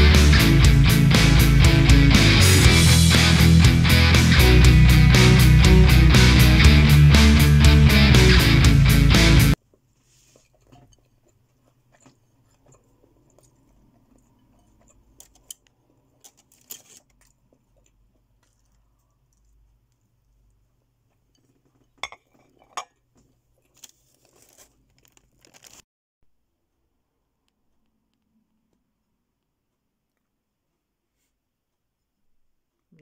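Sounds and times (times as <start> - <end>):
quiet chewing: 10.2 - 22.0, 22.9 - 25.4.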